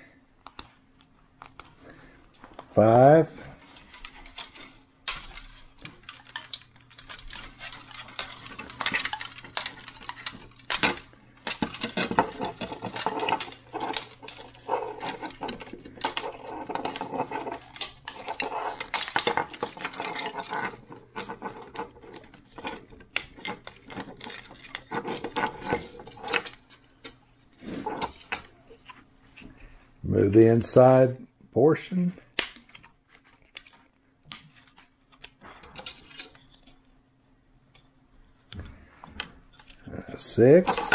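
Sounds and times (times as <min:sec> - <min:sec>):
plastic parts snapping and clattering: 0:03.7 - 0:27.2.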